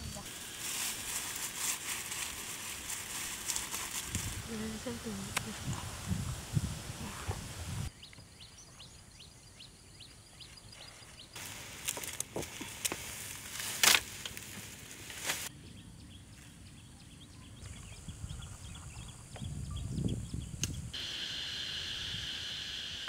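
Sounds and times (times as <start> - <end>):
dry grass rustling and crackling: 0.0 - 6.8, 10.8 - 15.5.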